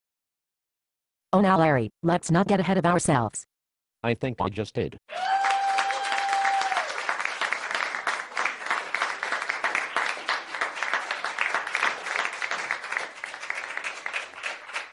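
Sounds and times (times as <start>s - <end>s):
audience applause: 5.1s - 14.9s.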